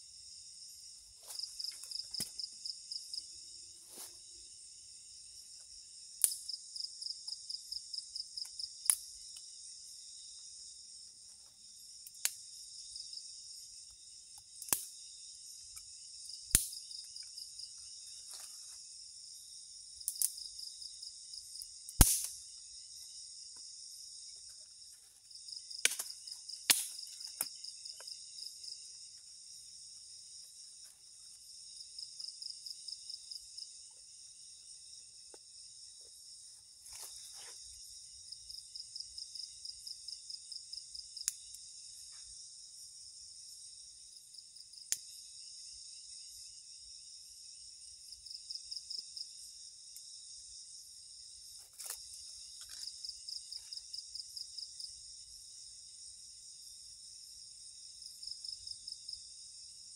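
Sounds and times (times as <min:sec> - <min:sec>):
crickets and insects trilling: 0:00.0 - 0:59.9
dry sticks snapping: 0:01.3 - 0:02.4, 0:06.2 - 0:06.5, 0:14.6 - 0:14.9, 0:16.5 - 0:16.8, 0:20.1 - 0:20.4, 0:21.9 - 0:22.4, 0:25.8 - 0:27.6, 0:51.6 - 0:52.9.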